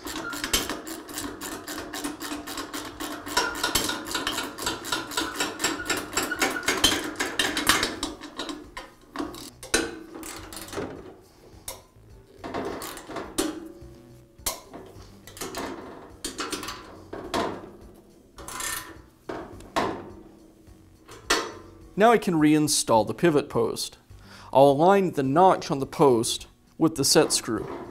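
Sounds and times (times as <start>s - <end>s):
socket ratchet wrench clicking: 0.0s - 10.8s.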